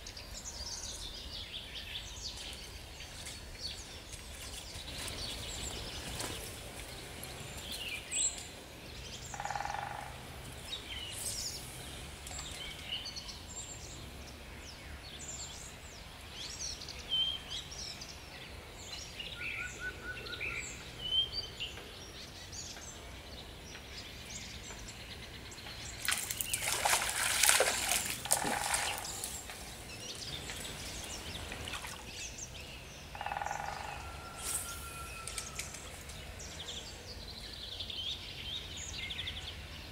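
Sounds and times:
birds chirping and calling: 4.8s - 13.9s, 24.0s - 39.5s
stream flowing: 25.8s - 32.4s.

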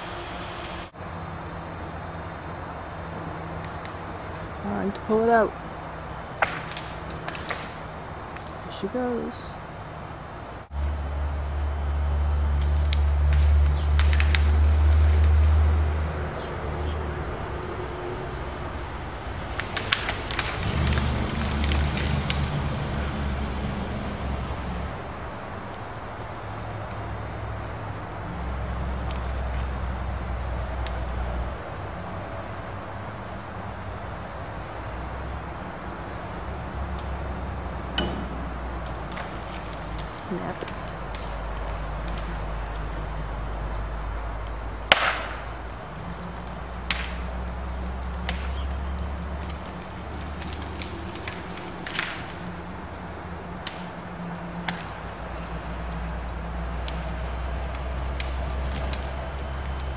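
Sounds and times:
heavy engine droning: 0.0s - 59.9s
branches snapping and cracking: 3.5s - 9.1s, 12.5s - 16.5s, 19.3s - 23.8s, 28.9s - 31.5s, 36.8s - 43.4s, 44.4s - 59.9s
sharp loud crack: 44.9s - 45.5s
light snaps: 46.4s - 53.8s.

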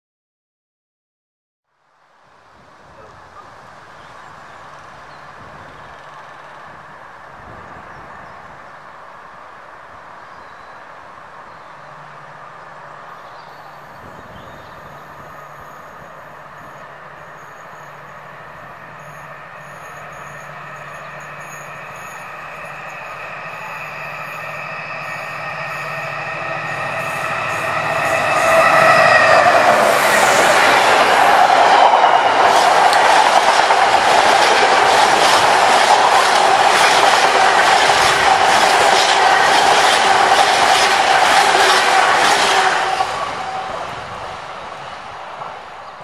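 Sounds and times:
diesel locomotive engines: 2.2s - 46.0s
steady whine: 16.8s - 45.9s.

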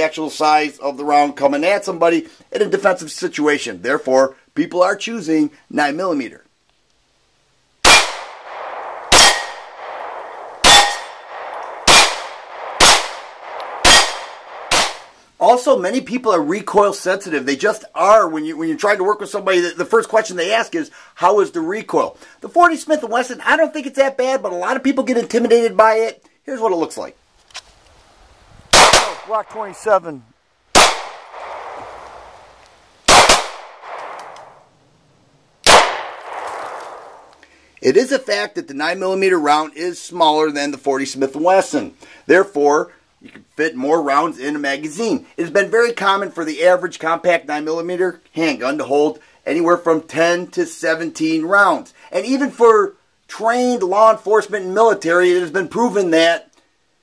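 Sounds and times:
pistol shots: 7.8s - 15.2s, 28.7s - 29.7s, 30.7s - 31.8s, 33.1s - 34.6s, 35.6s - 37.3s
steel target ringing: 7.9s - 15.0s.

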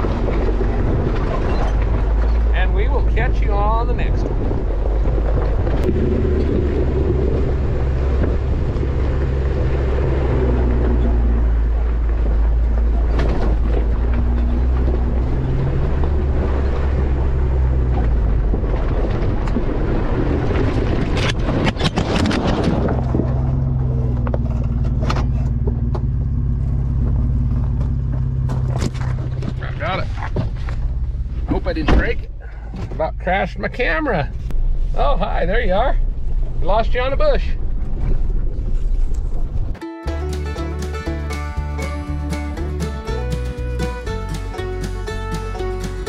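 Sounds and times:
vehicle engine running: 0.0s - 21.6s, 22.2s - 46.0s
knocks and scrapes: 0.0s - 33.1s.

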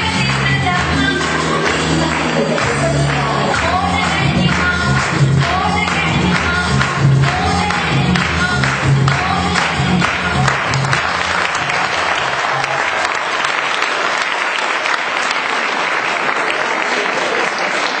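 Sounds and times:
dance song music: 0.0s - 13.0s
audience applauding: 0.0s - 18.0s.

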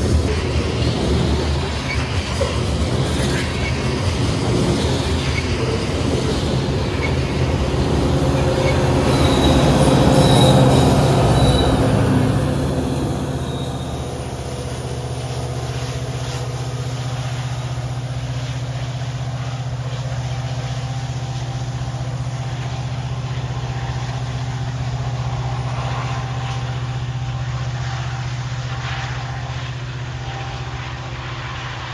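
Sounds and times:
diesel locomotive engine drone: 0.0s - 31.9s
rail noise: 0.0s - 31.9s
wheel squeal: 1.6s - 2.6s, 4.8s - 14.9s.

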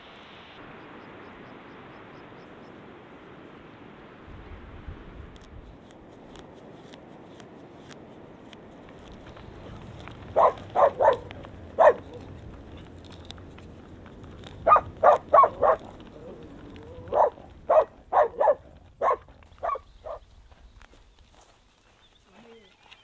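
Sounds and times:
horse hooves walking on gravel: 5.4s - 23.0s
dog barking: 10.3s - 12.3s, 14.6s - 16.1s, 16.9s - 20.2s.

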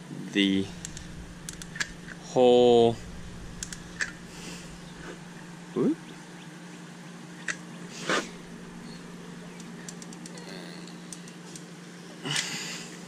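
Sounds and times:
low hum: 0.1s - 6.0s, 8.2s - 11.1s
faint clicks: 0.6s - 2.3s, 2.9s - 5.4s.

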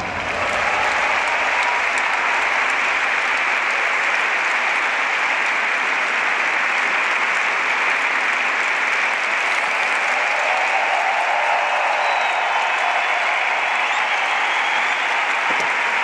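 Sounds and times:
large audience applauding: 0.0s - 16.0s.

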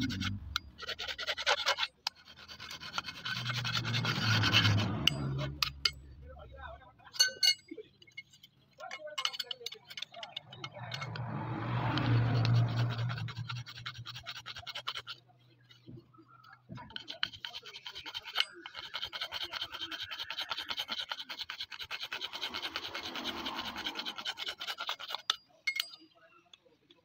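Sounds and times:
low hum: 0.0s - 0.8s
file rasping on metal: 0.0s - 6.0s, 9.2s - 16.0s, 16.7s - 26.0s.

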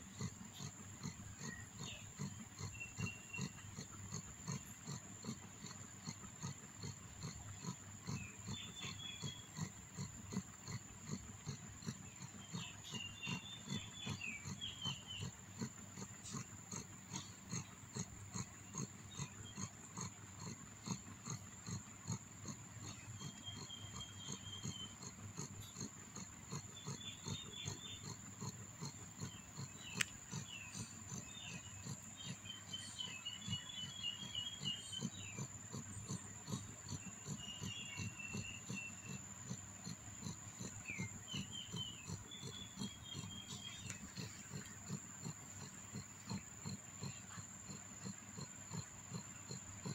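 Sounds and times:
cat purring: 0.0s - 49.9s
kittens chirping: 8.0s - 10.8s, 12.2s - 15.7s.

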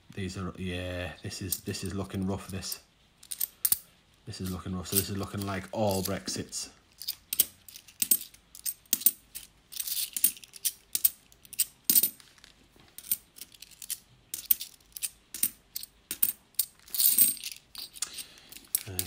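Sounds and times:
coins clinking: 2.5s - 19.0s
coins sliding scrape: 3.2s - 6.3s, 6.9s - 19.0s.

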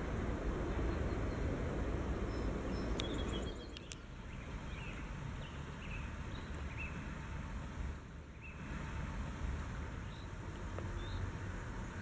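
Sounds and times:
faint bird chirps: 2.3s - 7.1s, 8.3s - 8.8s.

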